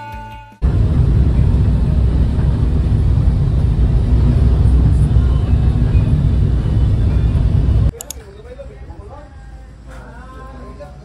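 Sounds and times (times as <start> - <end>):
truck passing close by: 0.6 - 7.9.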